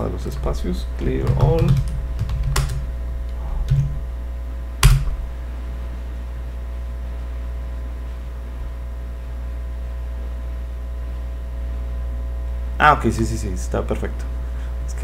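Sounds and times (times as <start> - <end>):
low electrical hum: 0.0 - 15.0
computer keyboard keystrokes: 1.2 - 2.8, 3.7 - 3.9, 4.8 - 5.1.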